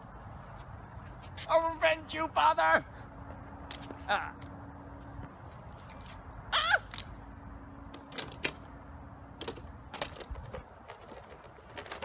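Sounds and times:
wheeled board rattling on asphalt: 9.3 - 12.0.

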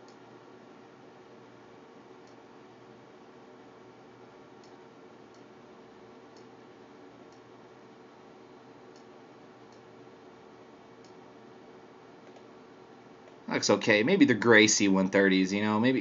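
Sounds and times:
computer mouse clicks: 4.6 - 5.5, 8.9 - 9.1, 12.2 - 12.5.

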